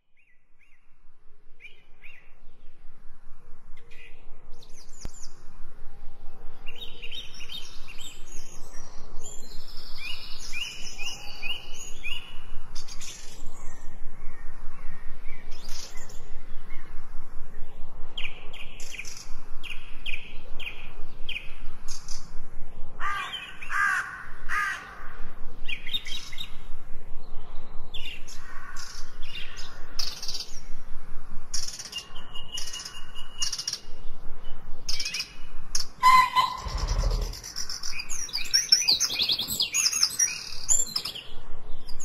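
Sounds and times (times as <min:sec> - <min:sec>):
birds chirping: 0:31.6 - 0:41.4
loud low bird call: 0:36.0 - 0:37.9.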